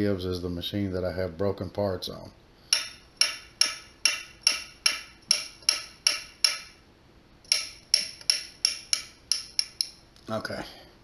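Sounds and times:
metal rod tapping metal parts: 0:02.7 - 0:06.8, 0:07.4 - 0:10.0.

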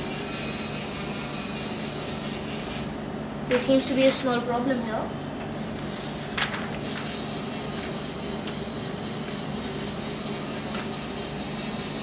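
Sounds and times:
servo motors and plastic gears running: 0:06.8 - 0:12.0.

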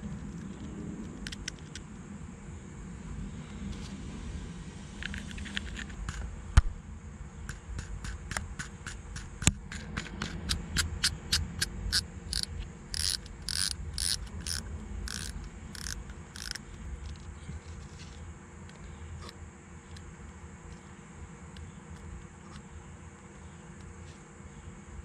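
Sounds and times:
fishing reel drag clicking: 0:11.0 - 0:16.6.

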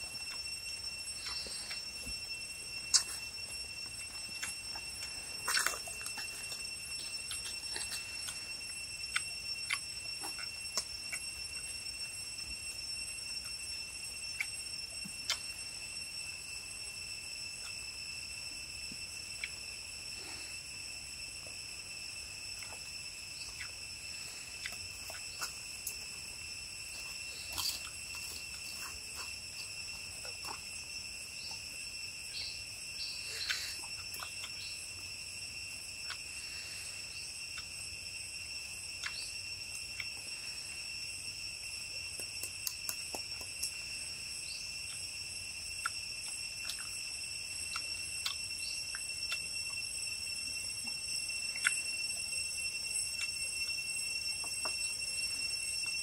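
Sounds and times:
insects shrilling: 0:00.0 - 0:56.0
chewing clicks: 0:01.2 - 0:01.9, 0:02.9 - 0:03.3, 0:03.9 - 0:11.7, 0:14.4 - 0:15.6, 0:24.6 - 0:26.1, 0:27.0 - 0:30.8, 0:33.2 - 0:35.0, 0:36.0 - 0:36.3, 0:38.9 - 0:40.4, 0:42.0 - 0:43.9, 0:45.7 - 0:49.9, 0:50.8 - 0:52.2, 0:53.1 - 0:53.8.

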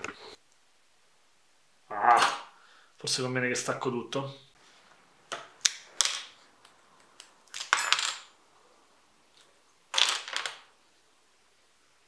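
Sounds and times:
plastic bricks clattering on a table: 0:07.5 - 0:08.4, 0:09.9 - 0:10.7.

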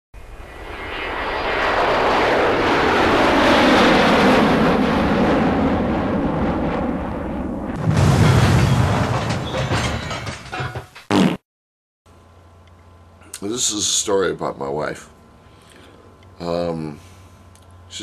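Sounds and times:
cartoon rocket engine rushing: 0:00.2 - 0:07.8
loud explosion: 0:00.3 - 0:10.4.

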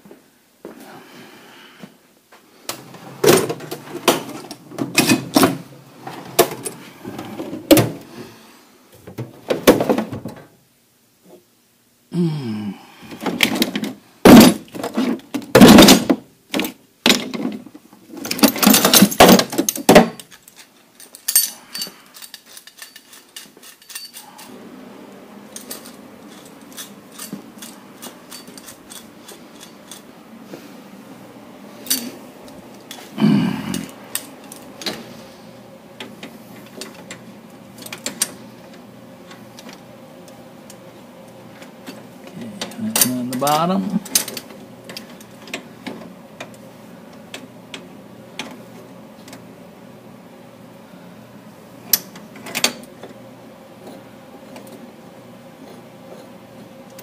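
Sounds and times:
steel tools clanking in drawer: 0:03.2 - 0:06.8, 0:18.2 - 0:24.5, 0:25.6 - 0:30.1.

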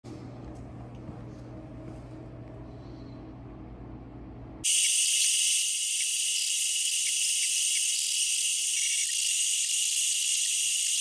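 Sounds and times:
low workshop hum: 0:00.1 - 0:11.0
router spindle high-pitched hiss: 0:04.7 - 0:11.0.

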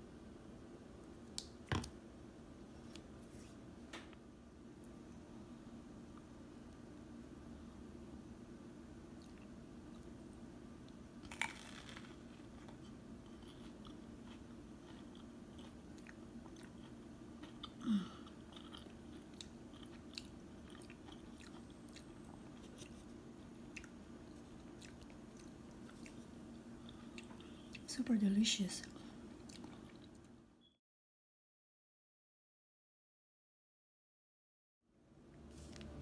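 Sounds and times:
steady low hum: 0:00.0 - 0:30.8
person chewing crisp bread: 0:10.8 - 0:27.9, 0:28.8 - 0:30.4.

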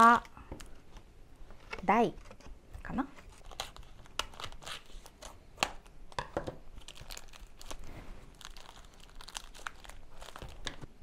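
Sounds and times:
plastic wrapper crinkling and tearing: 0:03.2 - 0:06.0, 0:06.7 - 0:10.9.

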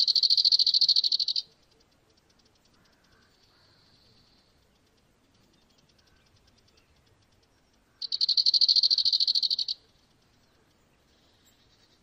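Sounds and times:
faint high chirring: 0:00.0 - 0:12.0.

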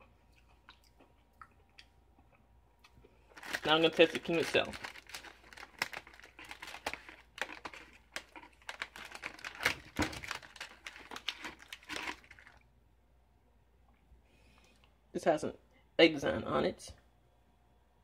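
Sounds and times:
plastic wrapper crinkling: 0:03.2 - 0:12.6.

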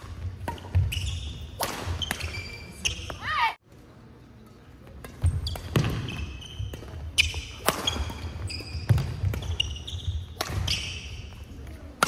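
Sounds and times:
racket hitting shuttlecock: 0:00.0 - 0:02.4, 0:05.0 - 0:11.2
shoes squeaking on wooden floor: 0:05.2 - 0:11.3.

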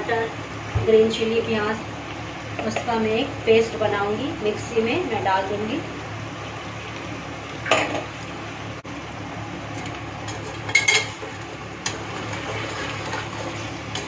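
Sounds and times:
faint sizzle: 0:00.0 - 0:14.0
metal clanks on pot: 0:10.3 - 0:11.2.

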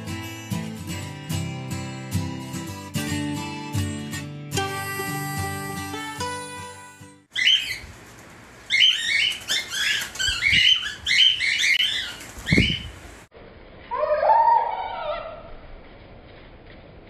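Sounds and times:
cockatiels chirping: 0:07.3 - 0:07.9, 0:08.7 - 0:12.9.

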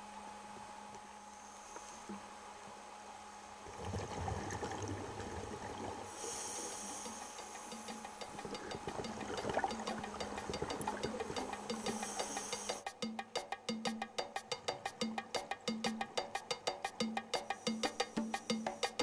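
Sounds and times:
water rushing underwater: 0:03.7 - 0:06.9, 0:08.3 - 0:12.7
high hiss: 0:06.1 - 0:13.0, 0:16.9 - 0:19.0
faint ticking background music: 0:06.3 - 0:19.0.

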